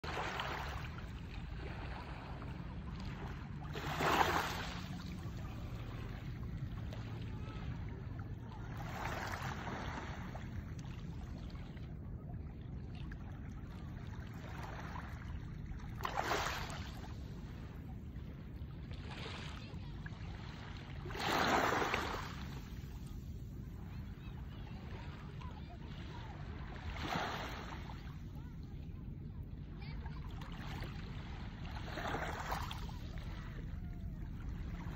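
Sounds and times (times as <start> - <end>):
steady low rumble: 0.0 - 4.0, 16.8 - 21.1, 27.7 - 34.9
small waves washing on shore: 0.0 - 11.8, 13.0 - 17.8, 18.8 - 28.9, 29.6 - 34.9.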